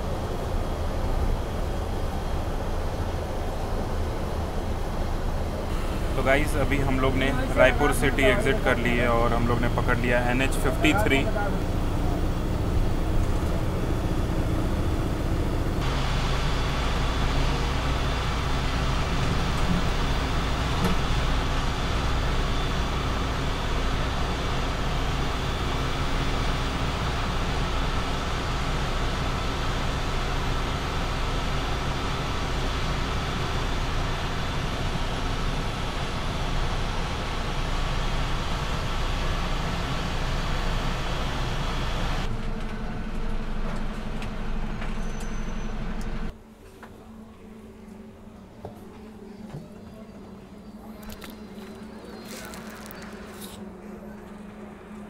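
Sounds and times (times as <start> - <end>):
coach engine drone: 0.0 - 55.0
tyre and road noise: 50.7 - 55.0.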